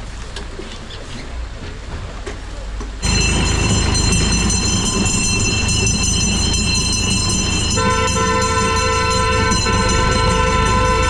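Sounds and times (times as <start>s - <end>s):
tractor engine running: 0.0s - 11.0s
high-pitched tones: 3.0s - 11.0s
lower tone: 3.0s - 11.0s.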